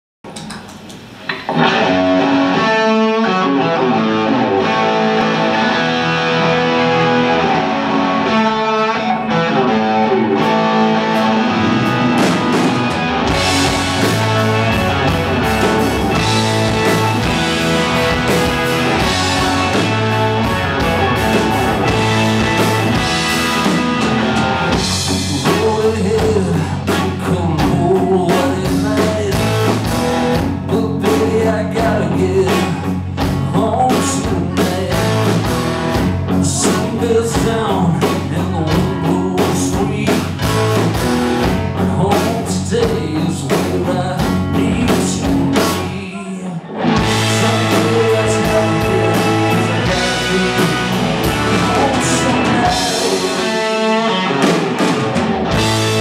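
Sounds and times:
drum kit: 0.2s - 2.9s, 9.6s - 46.2s, 46.8s - 56.0s
electric guitars: 0.3s - 56.0s.

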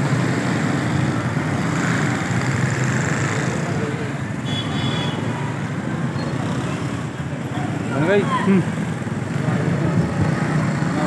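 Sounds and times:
motor traffic: 0.0s - 11.0s
crowd voices: 2.4s - 4.5s, 5.2s - 11.0s.

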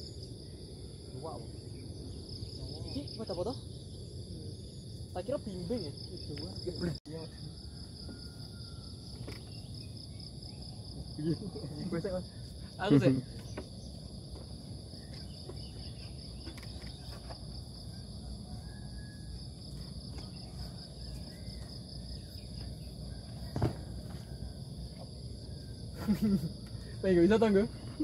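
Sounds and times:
insect chorus buzzing: 0.0s - 28.0s
dull thump: 23.5s - 24.2s.

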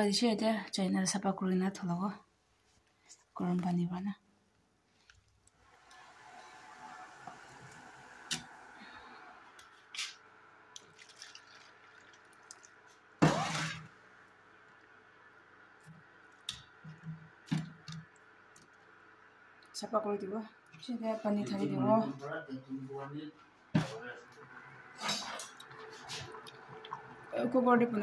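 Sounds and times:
water pouring into a plastic bowl: 10.7s - 15.0s, 25.5s - 27.4s
water splashing and trickling: 10.7s - 19.2s, 24.9s - 27.7s.

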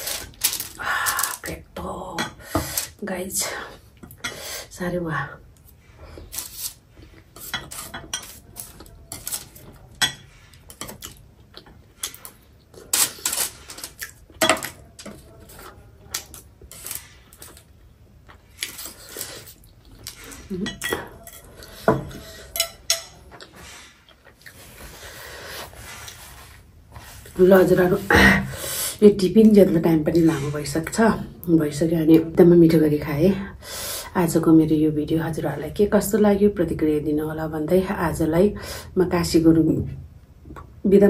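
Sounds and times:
metal chopsticks scraping a bowl: 7.4s - 10.9s.

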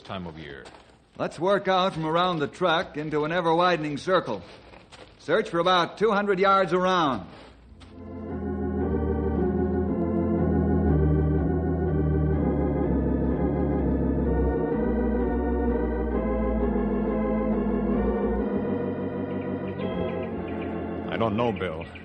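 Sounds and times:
organ playing held chords: 7.8s - 22.0s.

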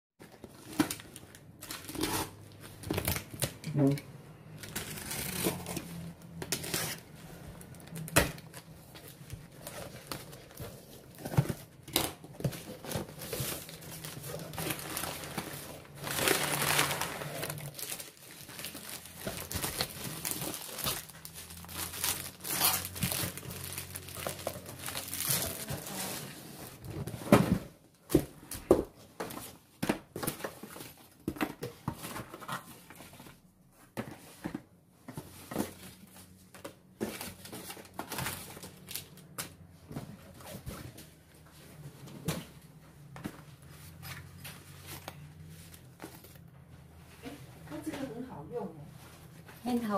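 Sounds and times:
packing material crinkling: 4.6s - 26.3s.

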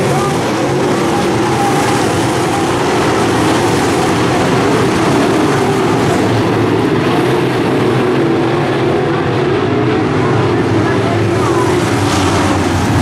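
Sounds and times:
race car engines drone: 0.0s - 13.0s.

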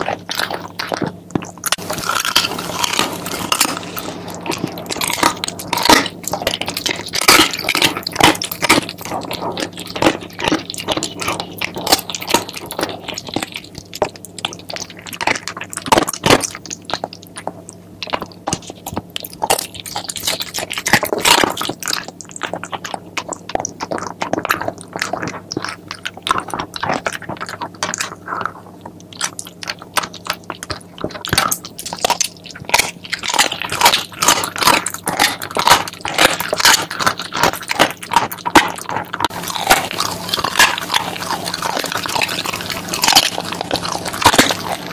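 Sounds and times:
dog chewing and crunching bone: 0.0s - 44.9s.

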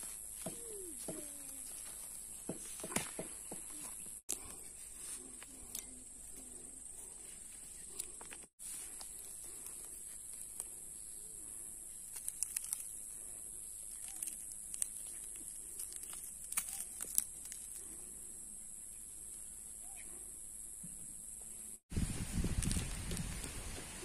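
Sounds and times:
plants rustling and clicking: 0.0s - 10.8s, 12.0s - 17.9s
faint bird calls: 19.8s - 20.3s.

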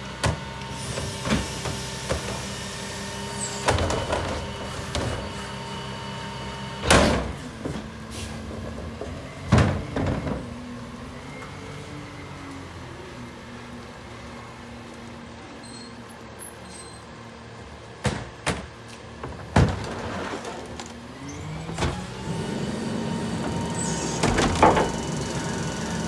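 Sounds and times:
garbage cart knocks and bangs: 19.4s - 20.3s
garbage truck engine idling: 22.2s - 26.0s.

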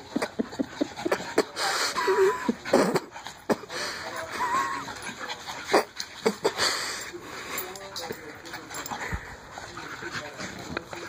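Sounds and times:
dogs snorting and wheezing: 0.0s - 11.0s
dog whining: 4.2s - 5.9s.

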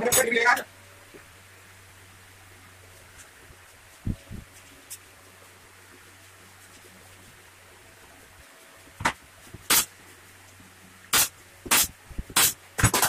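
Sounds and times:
nail gun firing: 9.7s - 9.9s, 11.1s - 13.0s.

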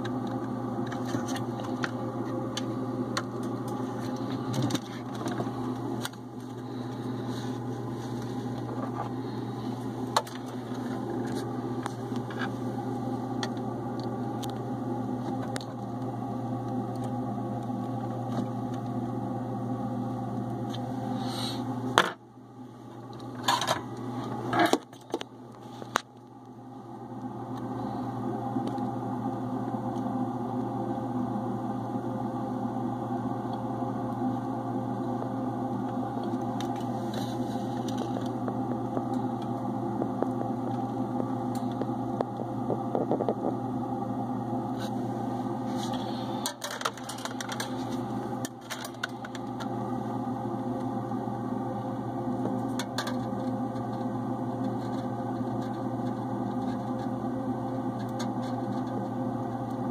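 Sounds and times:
electric machine hum: 0.0s - 59.9s.

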